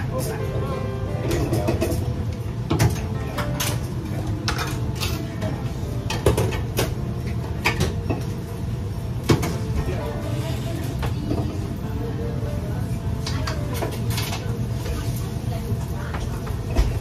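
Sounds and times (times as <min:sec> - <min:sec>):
metal utensils clanking on pots: 0:01.2 - 0:08.4, 0:13.2 - 0:15.1.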